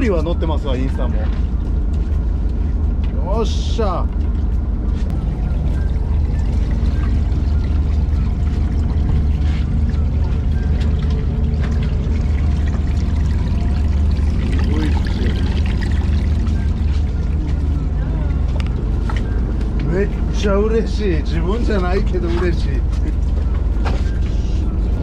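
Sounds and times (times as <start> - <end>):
steady low hum: 0.0 - 25.0
water pouring from hose: 5.3 - 17.1.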